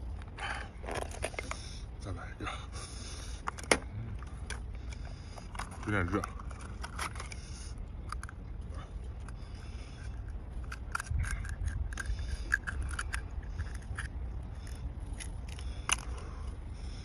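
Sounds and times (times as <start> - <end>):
knife scraping oyster shell: 5.4 - 8.4, 9.2 - 16.2
shell cracking: 9.2 - 16.3.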